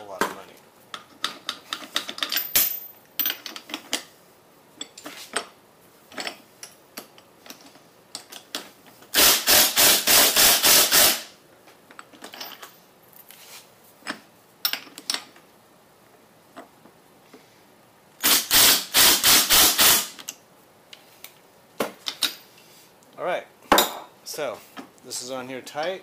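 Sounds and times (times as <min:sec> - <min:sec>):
metal tools clicking and clinking: 0:12.0 - 0:13.3.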